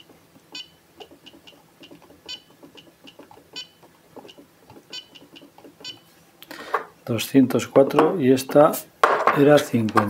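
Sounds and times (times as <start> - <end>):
short electronic beeps: 0.5 - 0.8, 4.9 - 5.2.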